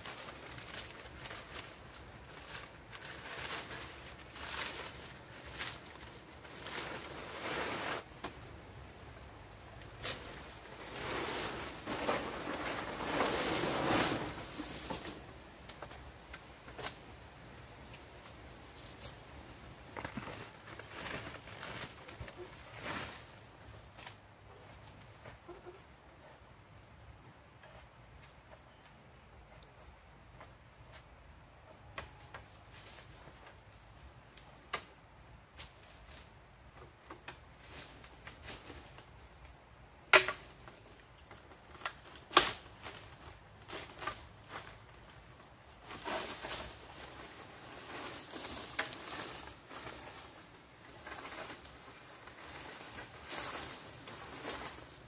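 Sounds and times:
rustling and clatter: 0:00.0 - 0:08.1, 0:10.0 - 0:15.2.

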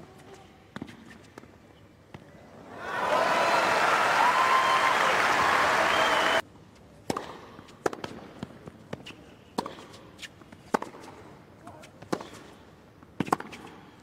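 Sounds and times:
crowd applauding and cheering: 0:02.7 - 0:06.4
whistles from crowd: 0:03.3 - 0:06.4
tennis ball bouncing: 0:13.2 - 0:13.7.

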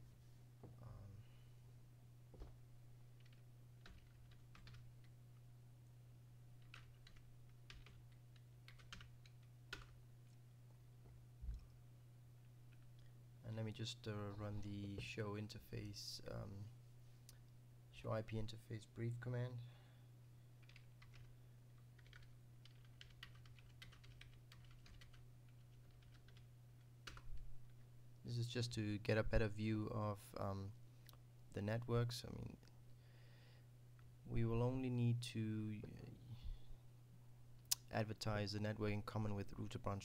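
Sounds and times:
steady low hum: 0:00.0 - 0:40.0
computer keyboard keystrokes: 0:03.2 - 0:05.1, 0:06.6 - 0:10.0, 0:20.6 - 0:21.3, 0:22.0 - 0:26.4.

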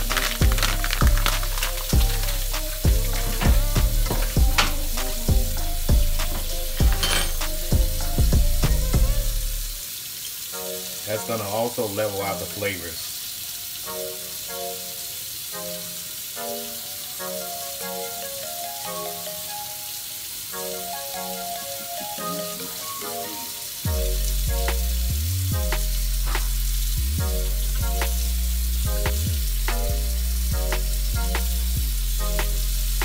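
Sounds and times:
background music with bass: 0:00.0 - 0:09.8, 0:20.6 - 0:33.0.

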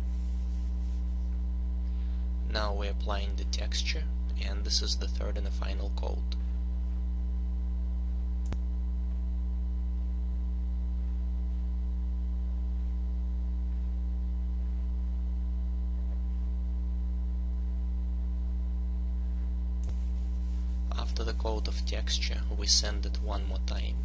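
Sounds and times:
low electrical hum: 0:00.0 - 0:24.0
faint click: 0:08.4 - 0:08.6.

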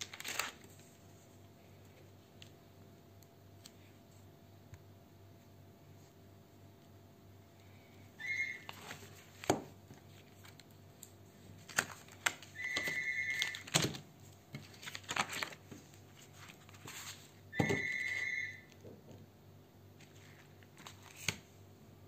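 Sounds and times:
comic books handled: 0:08.7 - 0:10.6, 0:11.4 - 0:18.2.

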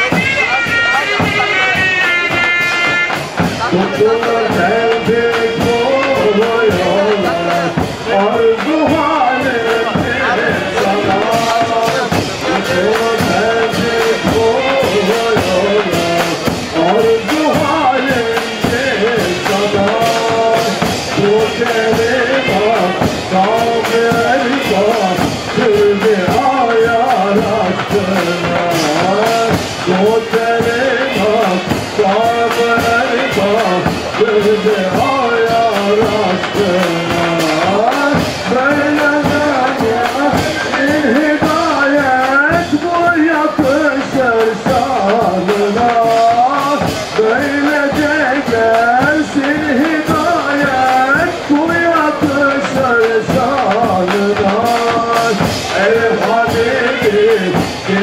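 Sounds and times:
shrill zurnas playing melody: 0:00.0 - 0:07.6
cymbals: 0:00.0 - 0:58.0
drum beats: 0:00.0 - 0:58.0.

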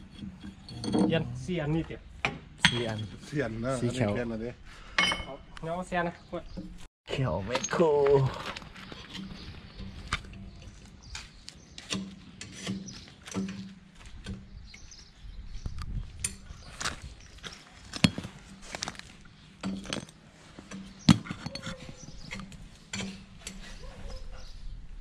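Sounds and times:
metal teeth clinking on stones: 0:20.9 - 0:23.7.

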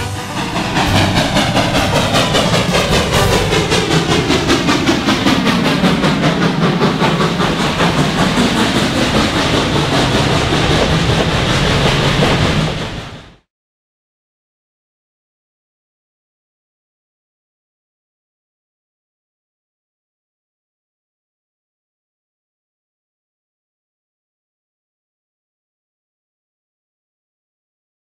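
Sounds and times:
steam train passing: 0:00.0 - 0:13.5.

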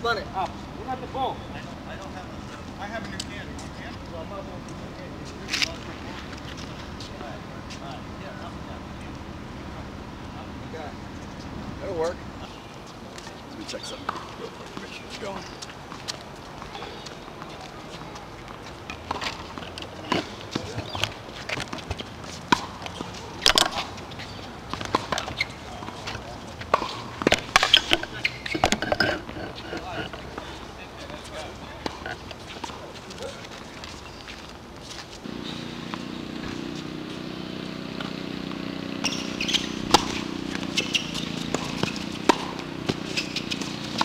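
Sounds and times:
shoe squeaks: 0:12.4 - 0:38.2, 0:39.0 - 0:44.0
tennis ball strikes: 0:18.9 - 0:24.0, 0:24.7 - 0:30.6, 0:38.0 - 0:44.0.

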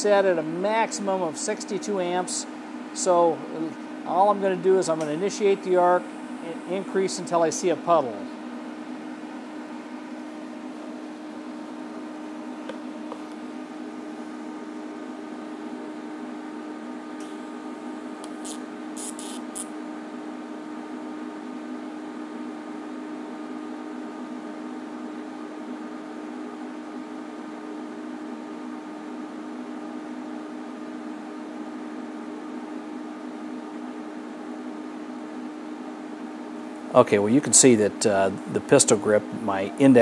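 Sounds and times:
welder hum and hiss: 0:00.0 - 0:09.6, 0:17.2 - 0:19.8
welding arc crackles: 0:18.2 - 0:19.7.

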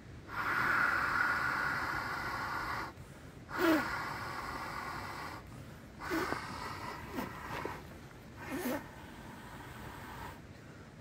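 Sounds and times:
person blowing into valve: 0:03.5 - 0:05.0, 0:06.0 - 0:07.8, 0:08.4 - 0:09.0.

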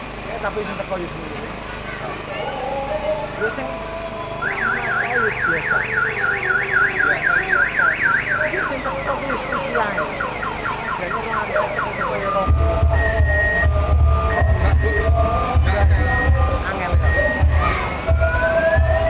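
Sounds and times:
electronic alarm siren: 0:04.4 - 0:19.0
music with heavy bass beat: 0:04.5 - 0:19.0.

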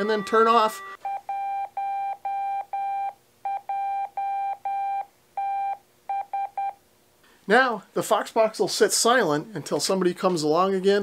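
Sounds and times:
morse code beeps: 0:00.0 - 0:06.8.

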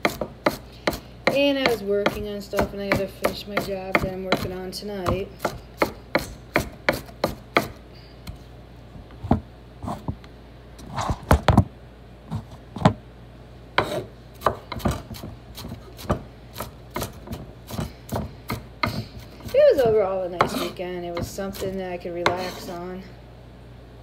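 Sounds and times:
knife chopping on wooden board: 0:00.0 - 0:07.8, 0:13.8 - 0:22.8.

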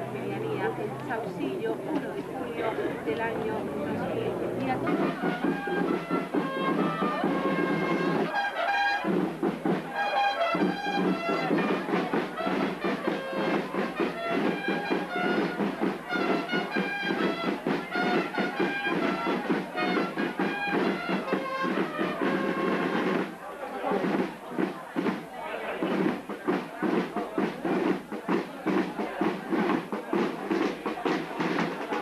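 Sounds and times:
brass band music: 0:00.0 - 0:23.4.

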